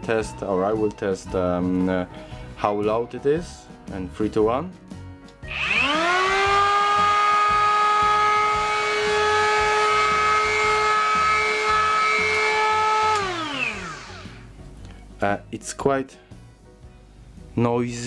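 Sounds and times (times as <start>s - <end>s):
cordless planer whining: 5.5s - 14.5s.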